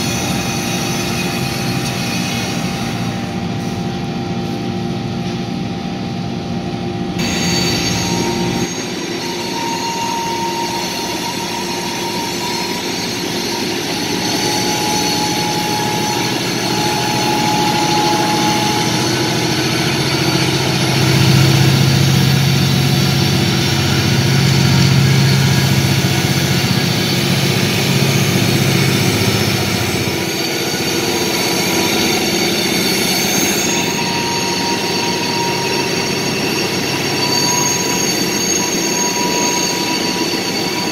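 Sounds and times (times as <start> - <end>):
steel wheel squeal: 0.0 - 3.5, 7.2 - 40.9
diesel locomotive engines droning: 0.0 - 40.9.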